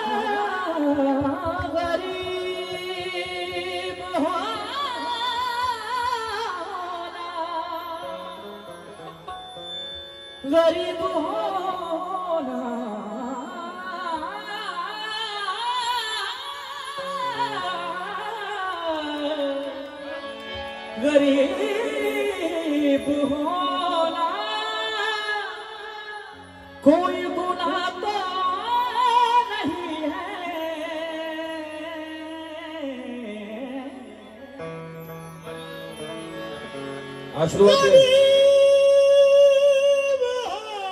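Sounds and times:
person singing ornamented phrases: 37.4s - 40.9s.

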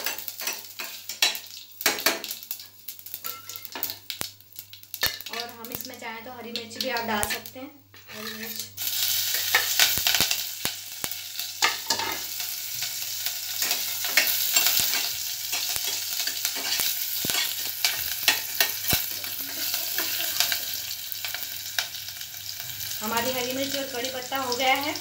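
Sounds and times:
chillies sizzling in hot oil: 0.0s - 25.0s
spatula scraping steel pot: 8.0s - 8.7s
sharp crackles: 8.4s - 11.4s, 13.7s - 22.0s.

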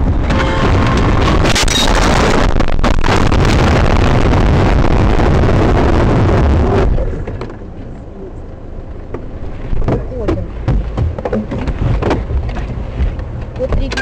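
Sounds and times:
car crash rumbling: 0.0s - 7.8s.

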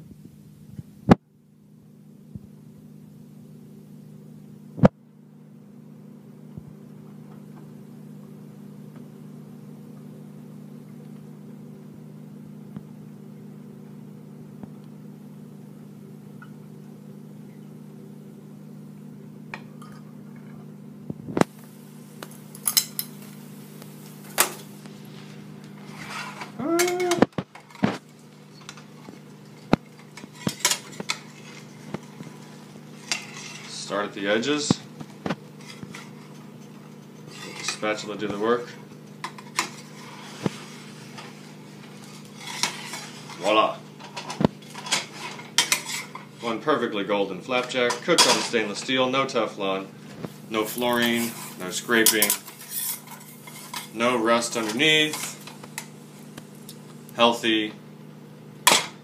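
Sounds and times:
steady motor hum: 0.0s - 59.0s
utensils clinking against bowl and pan: 50.7s - 54.0s.

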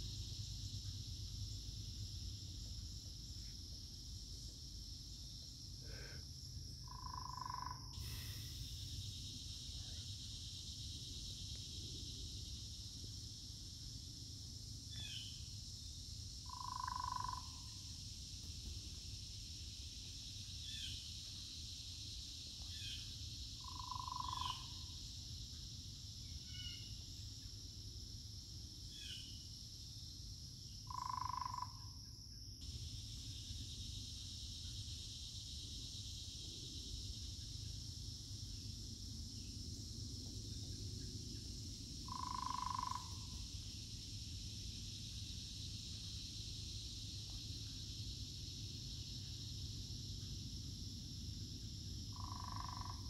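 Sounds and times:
high insect chorus: 0.0s - 53.0s.

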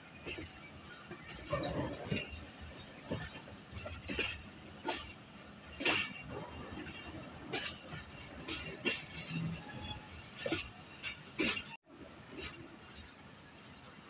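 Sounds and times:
train running rumble: 0.0s - 14.0s
train wheels clanking over rail joints: 0.1s - 14.0s.

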